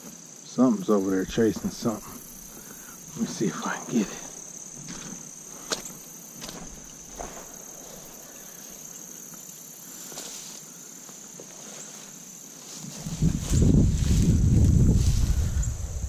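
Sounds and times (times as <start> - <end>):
high-pitched insect chorus: 0.0 - 16.0
footsteps through tall grass: 1.1 - 16.0
loud low rumbling on microphone: 13.0 - 16.0.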